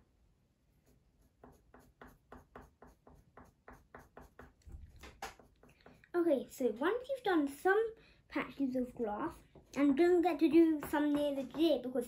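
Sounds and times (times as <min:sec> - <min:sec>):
pencil scratching on paper: 0:00.7 - 0:06.2.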